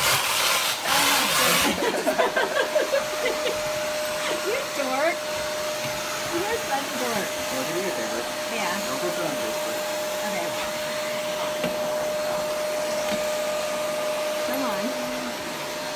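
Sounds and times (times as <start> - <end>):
vacuum cleaner running: 0.0 - 15.9.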